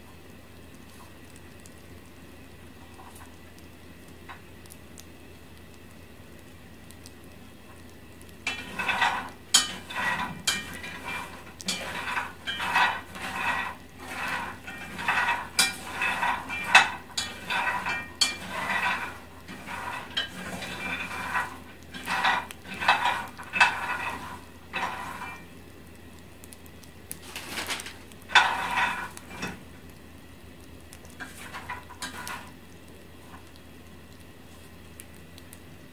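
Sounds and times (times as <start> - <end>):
peanuts scraping and rattling in pan: 8.4 - 25.6, 27.1 - 29.8, 31.0 - 32.6.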